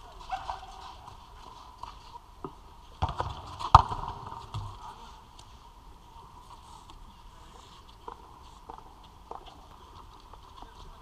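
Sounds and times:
football kick thud: 3.0s - 4.7s.

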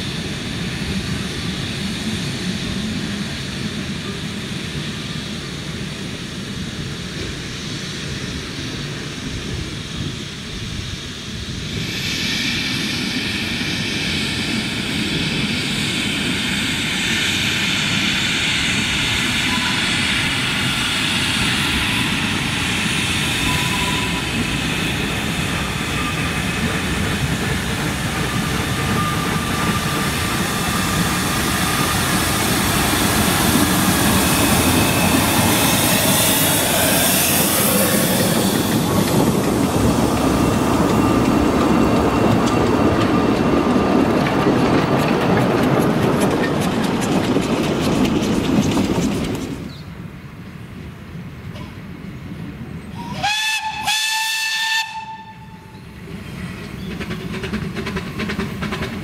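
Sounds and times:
loud steam hiss: 0.0s - 43.2s
steam locomotive rumble: 0.0s - 59.0s.

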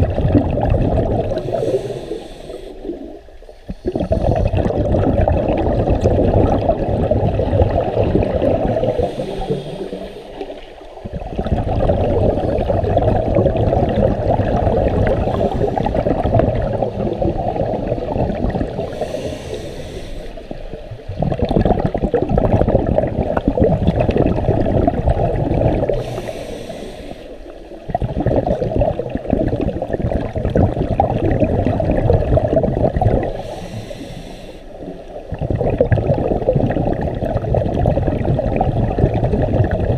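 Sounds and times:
underwater exhaled bubbles: 0.0s - 39.9s
regulator inhale hiss: 1.3s - 4.5s, 8.8s - 11.0s, 15.2s - 16.0s, 18.8s - 20.6s, 25.9s - 27.8s, 33.3s - 35.2s.

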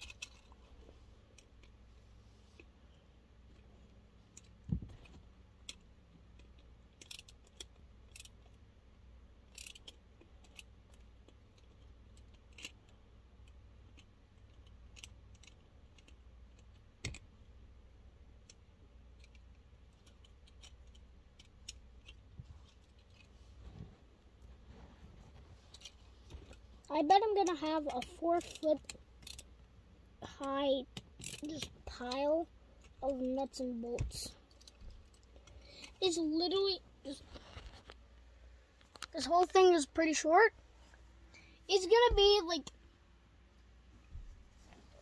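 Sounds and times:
clicks and taps of toy parts: 0.0s - 0.7s, 4.3s - 8.6s, 9.4s - 17.4s, 18.4s - 23.3s, 25.7s - 29.5s, 30.2s - 36.0s.

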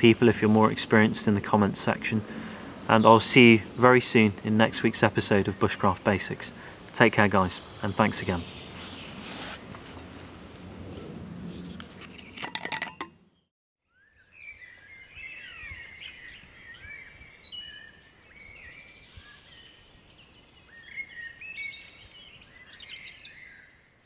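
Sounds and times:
background hiss: 0.0s - 10.2s
birds chirping and whistling: 7.4s - 9.4s, 13.9s - 24.0s.

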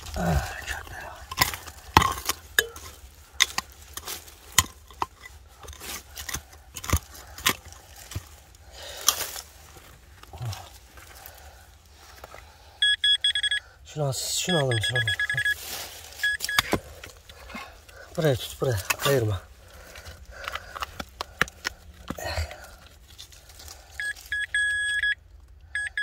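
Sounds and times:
hard objects clicking and clinking: 0.0s - 8.4s.

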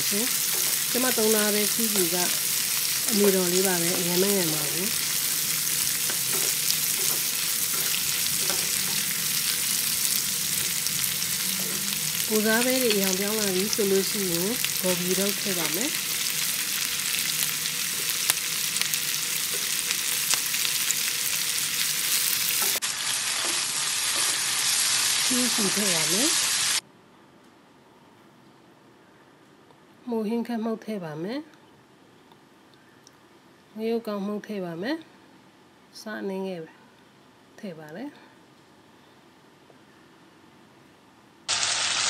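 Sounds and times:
stir-fry sizzling in wok: 0.0s - 26.8s, 41.5s - 42.0s
spatula scraping pan: 4.9s - 10.8s.

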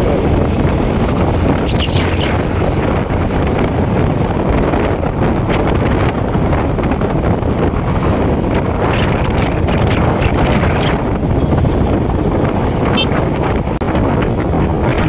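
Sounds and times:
motorcycle running: 0.0s - 15.0s
wind rushing over microphone: 0.0s - 15.0s.

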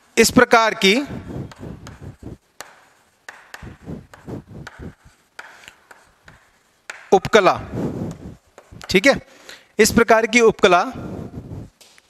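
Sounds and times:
chalk tapping and scraping on board: 1.2s - 9.2s.

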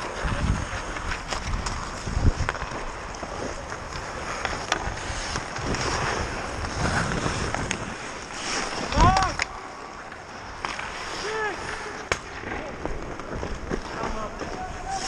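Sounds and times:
wind on microphone: 0.0s - 9.4s
hockey sticks and puck clacking: 0.0s - 15.0s
skates scraping on ice: 0.0s - 15.0s.

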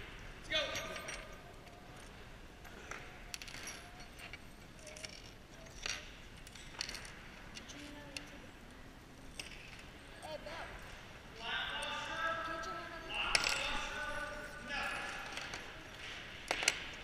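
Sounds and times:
metal bolts clinking on wooden table: 0.7s - 8.3s, 9.2s - 10.0s, 13.2s - 17.0s.

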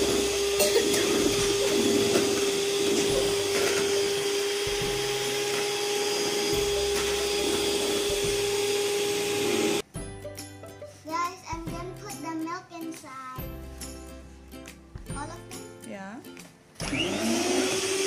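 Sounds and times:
electric hand mixer whining: 0.0s - 9.8s, 16.8s - 18.0s.

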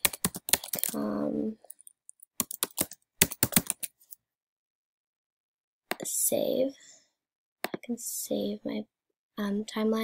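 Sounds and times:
typing on computer keyboard: 0.0s - 1.0s, 1.7s - 3.9s.

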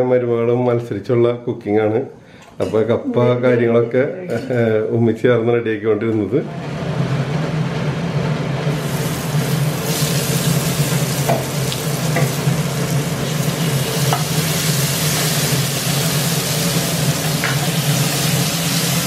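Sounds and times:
spices sizzling in a pan: 8.7s - 19.0s.

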